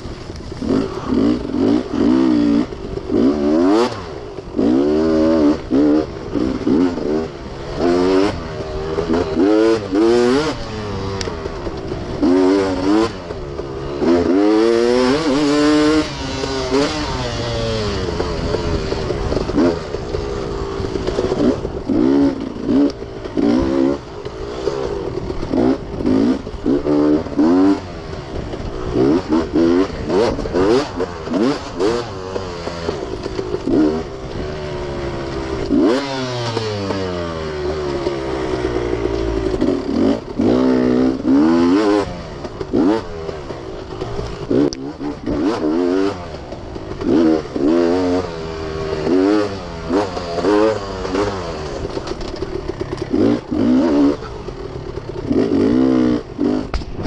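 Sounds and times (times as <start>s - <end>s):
dirt bike engine revving: 0.0s - 57.0s
knocks and clatter: 49.9s - 57.0s.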